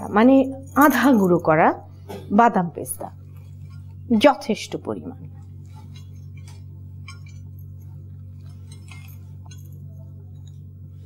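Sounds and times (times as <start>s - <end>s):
faint glass clinks and jingles: 0.0s - 1.6s, 5.6s - 10.7s
steady low hum: 0.0s - 11.0s.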